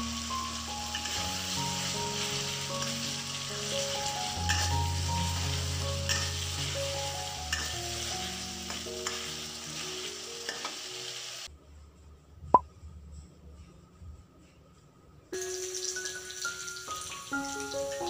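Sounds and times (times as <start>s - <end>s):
food sizzling in oil: 0.0s - 11.5s, 15.4s - 18.0s
background music: 0.0s - 18.0s
metal spatula scraping wok: 0.5s - 11.3s.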